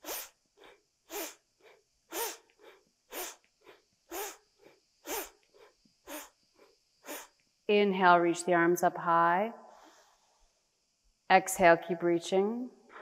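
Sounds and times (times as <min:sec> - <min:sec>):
woman breathing forcefully: 0:00.0 - 0:07.4.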